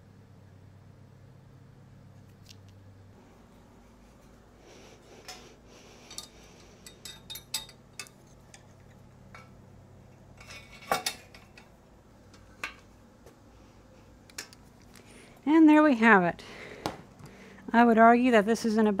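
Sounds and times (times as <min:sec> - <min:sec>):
metal clinks and knocks: 0:06.0 - 0:09.6.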